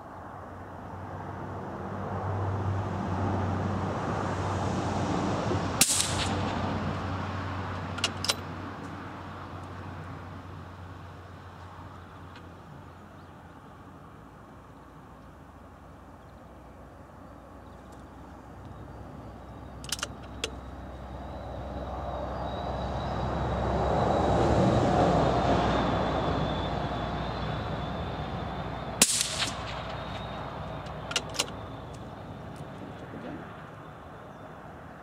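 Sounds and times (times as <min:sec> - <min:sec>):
vehicle passing by: 0:00.8 - 0:11.2, 0:20.7 - 0:34.9
rifle shot crack: 0:05.8 - 0:06.6, 0:29.0 - 0:30.4.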